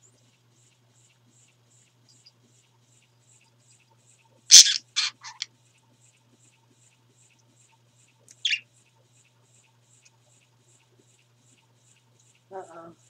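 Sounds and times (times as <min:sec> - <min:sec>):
parakeets chirping: 0:04.5 - 0:05.4, 0:08.4 - 0:08.6.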